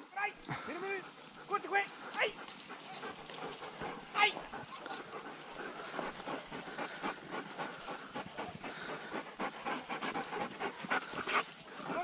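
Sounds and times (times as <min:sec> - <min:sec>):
dogs panting: 0:00.0 - 0:12.0
rustling through dry brush: 0:00.4 - 0:12.0.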